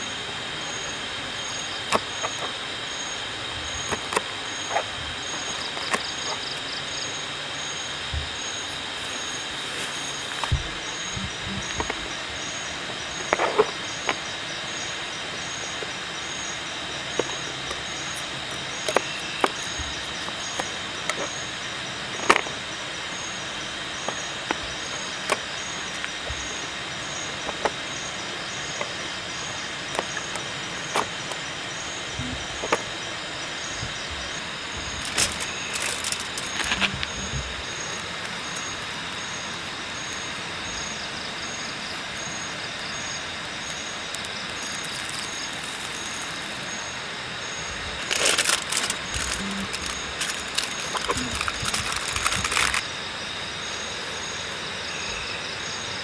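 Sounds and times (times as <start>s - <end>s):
background hiss: 0.0s - 55.9s
aluminium foil crinkling: 34.8s - 37.4s, 44.1s - 46.6s, 48.0s - 52.8s.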